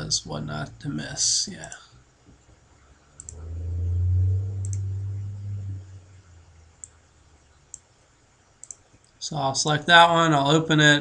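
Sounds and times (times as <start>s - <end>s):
low hum: 3.0s - 7.9s
computer mouse clicks: 3.2s - 3.4s, 8.6s - 9.2s.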